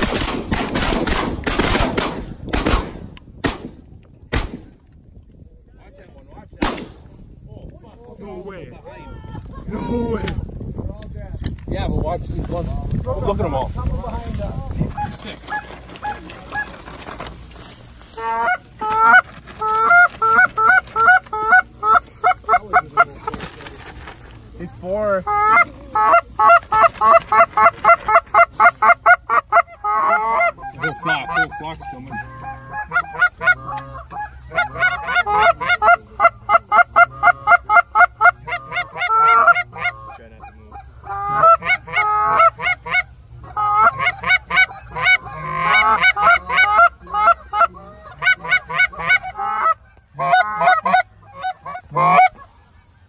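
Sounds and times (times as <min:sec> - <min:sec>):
goose call rapid honking clucks: 0:14.8 - 0:17.0, 0:18.1 - 0:23.4, 0:25.2 - 0:53.0.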